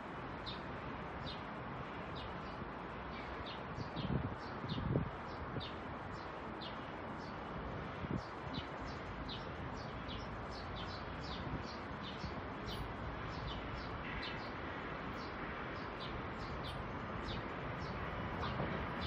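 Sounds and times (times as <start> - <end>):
bird chirping: 8.5 - 14.6.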